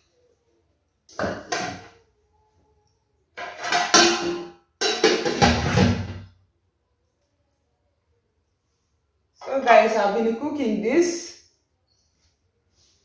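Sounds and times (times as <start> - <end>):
metal pots clattering: 1.1 - 2.0, 3.4 - 6.2.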